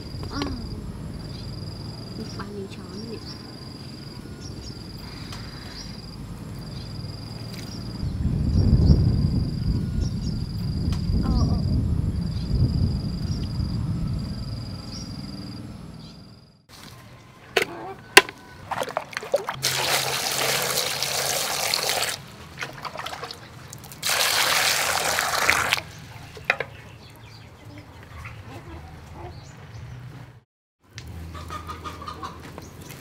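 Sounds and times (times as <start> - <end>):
low outdoor rumble: 0.0 - 19.7
water pouring into plastic bucket: 18.7 - 25.9.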